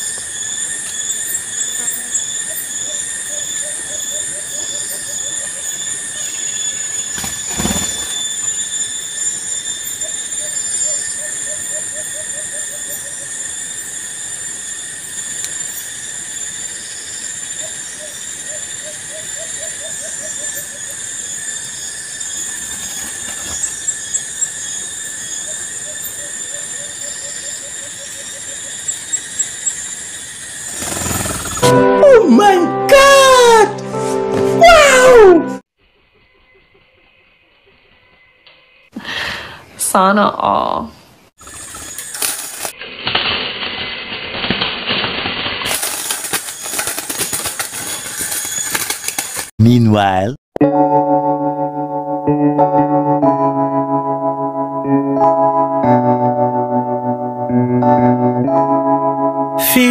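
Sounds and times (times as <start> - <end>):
shrill drone of insects: 0.0 - 31.8, 34.7 - 49.5.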